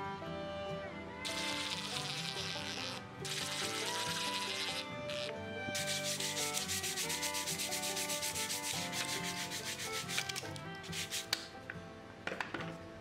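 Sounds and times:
hand rubbing on plywood: 1.4s - 11.5s.

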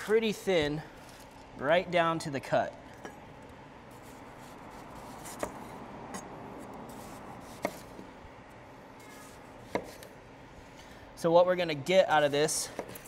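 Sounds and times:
knife slicing onion: 3.9s - 6.3s, 6.9s - 8.1s, 9.0s - 10.1s, 12.4s - 13.0s.

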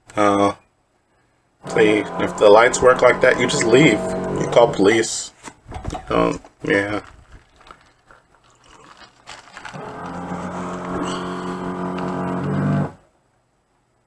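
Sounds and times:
low droning soundtrack tone: 1.6s - 4.9s, 9.8s - 13.0s.

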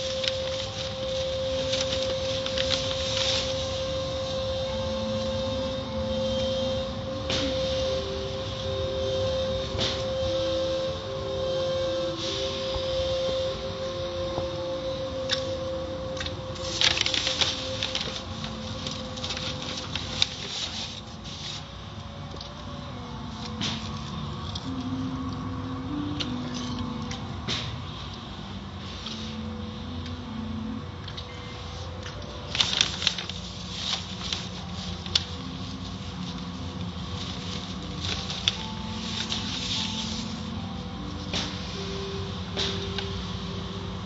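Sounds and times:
steady hum: 0.0s - 44.0s.

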